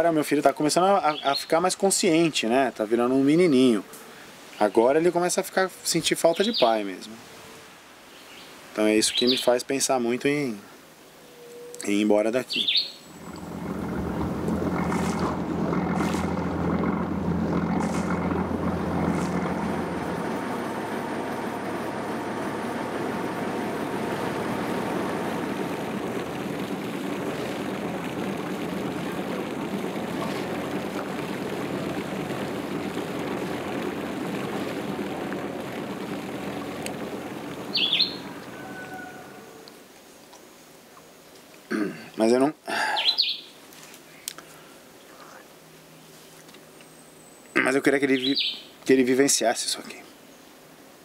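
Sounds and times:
motorboat engine drone: 13.0 - 39.7.

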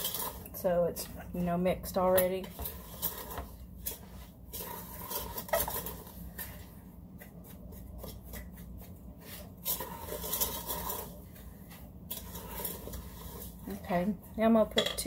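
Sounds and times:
wooden spoon scraping metal pot: 0.0 - 6.8, 9.1 - 15.0.

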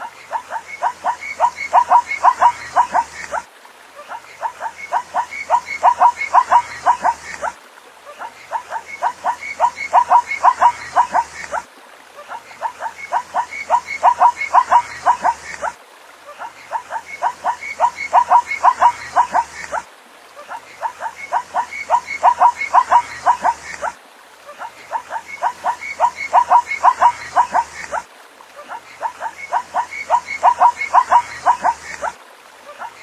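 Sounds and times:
zebra calling: 0.3 - 3.4, 4.4 - 7.5, 8.3 - 11.6, 28.8 - 32.1.

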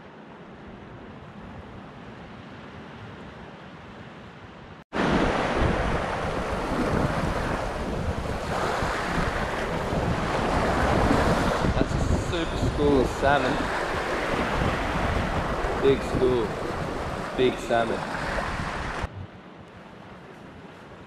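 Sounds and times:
wind: 0.0 - 21.0
surf washing and foaming: 5.0 - 19.1
wind buffeting microphone: 5.0 - 19.4.

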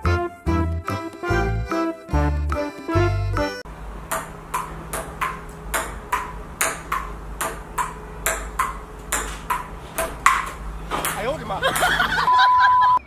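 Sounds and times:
ping-pong ball clicking: 4.1 - 12.0.

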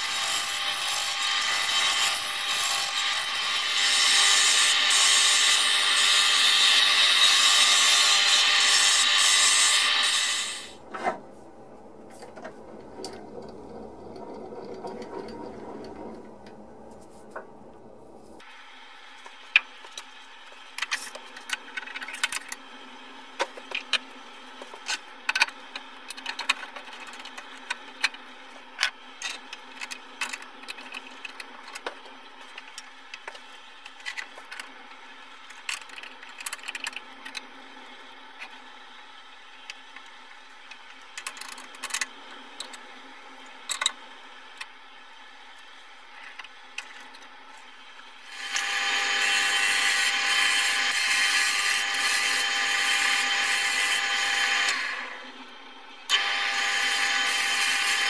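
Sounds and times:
wood lathe cutting: 0.0 - 10.8, 48.2 - 55.4, 56.1 - 58.0
metal parts clicking and clunking: 24.8 - 34.7, 35.5 - 37.5, 40.7 - 42.8, 43.7 - 44.0.

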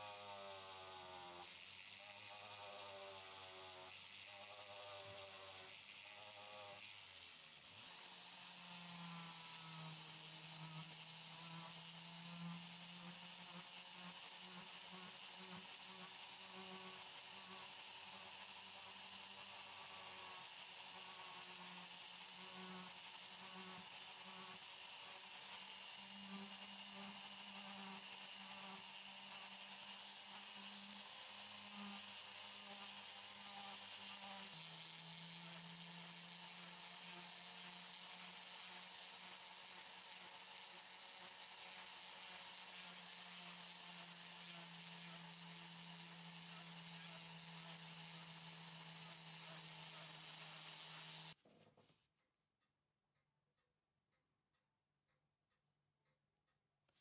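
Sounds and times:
electric machine humming: 0.0 - 51.4.

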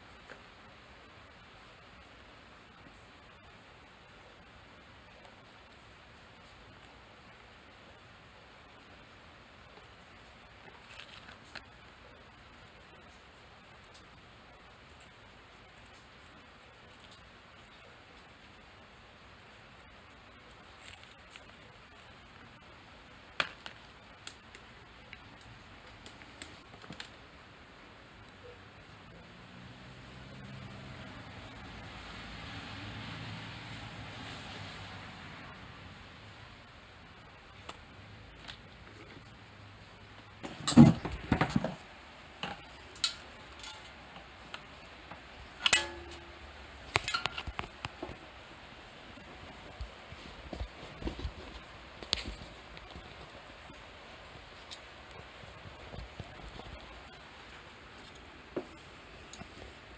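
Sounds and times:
faint steady hiss: 0.0 - 59.9
clicks and taps of wires: 46.9 - 48.2.

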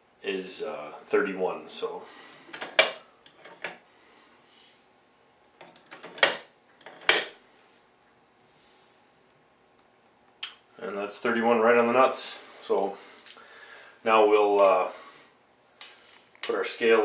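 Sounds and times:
powder pouring hiss: 4.4 - 4.9, 8.4 - 9.1, 15.9 - 16.4.

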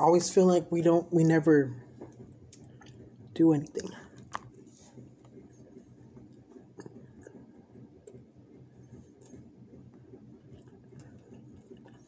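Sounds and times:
low steady hum: 0.0 - 12.0
chewing and mouth sounds: 2.0 - 4.6, 5.2 - 8.3, 10.4 - 12.0.

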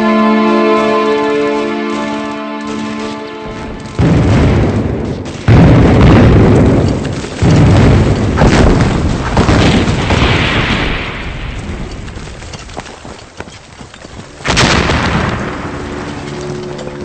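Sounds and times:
heavy explosions rumbling: 3.4 - 12.8, 14.4 - 17.0
smaller explosions: 3.4 - 12.8, 14.3 - 17.0.

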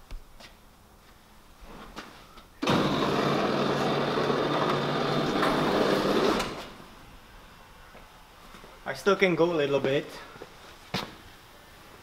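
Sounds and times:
electric garage door motor: 2.6 - 7.0.

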